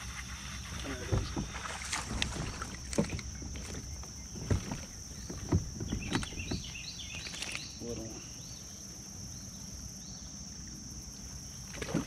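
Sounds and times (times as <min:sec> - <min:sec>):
knocks on kayak hull: 0:01.1 - 0:06.8.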